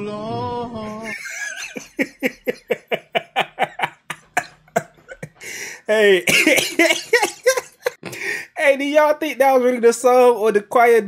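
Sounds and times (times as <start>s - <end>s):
man laughing hard: 1.0s - 8.4s.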